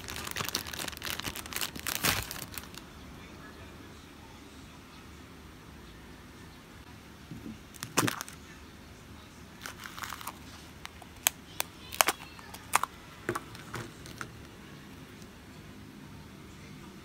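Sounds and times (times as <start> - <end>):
plastic capsule clicking and snapping: 9.6 - 14.4.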